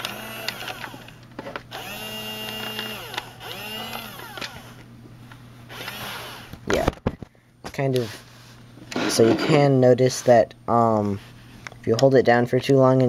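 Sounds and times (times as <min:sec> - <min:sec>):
small electric motor whirring: 0:00.0 - 0:04.8, 0:05.7 - 0:06.7.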